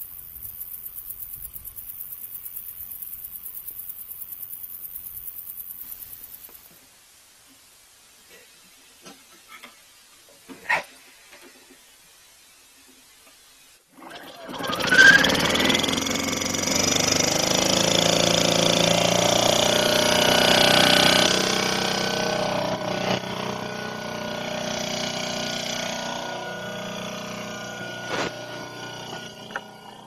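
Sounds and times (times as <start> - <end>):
petrol generator running: 14.0 - 30.0.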